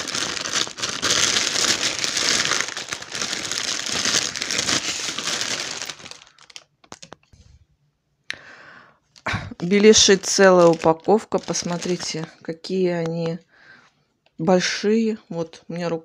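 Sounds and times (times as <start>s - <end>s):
plastic bag crinkling: 0.0s - 7.3s, 9.2s - 12.5s.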